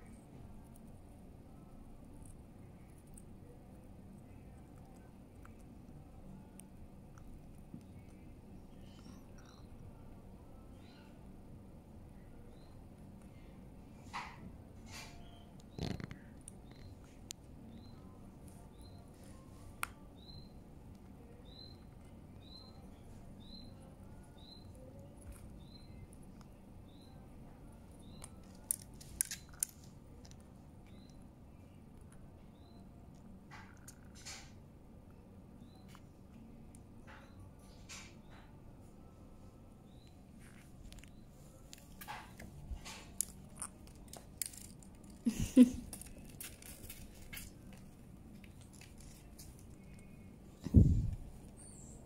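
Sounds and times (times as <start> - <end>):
bird chirping: 7.9 - 9.8, 15.0 - 19.1, 20.2 - 20.6, 21.3 - 26.1, 30.8 - 31.2, 50.0 - 52.0
parrot beak clicking and crunching food: 28.0 - 31.2, 33.1 - 34.5, 41.7 - 50.2.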